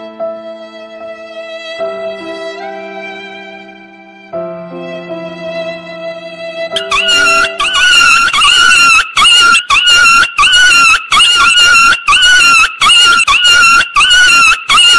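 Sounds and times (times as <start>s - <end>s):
loud animal cry: 6.8s - 14.9s.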